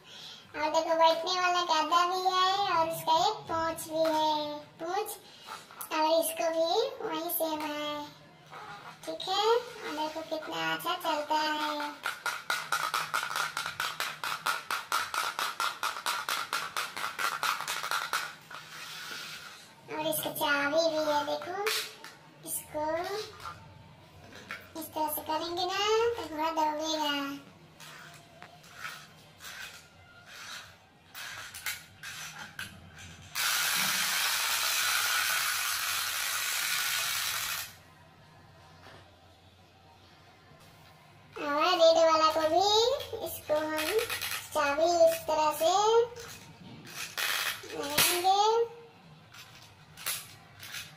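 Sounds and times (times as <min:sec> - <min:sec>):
wind-up toy clockwork clicking: 0:33.3 - 0:37.8.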